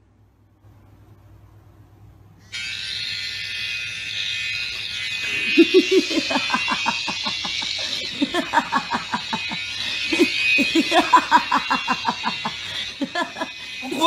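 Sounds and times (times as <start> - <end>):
harsh high-pitched phone noise: 2.5 - 14.0
laughter in bursts: 5.3 - 14.0.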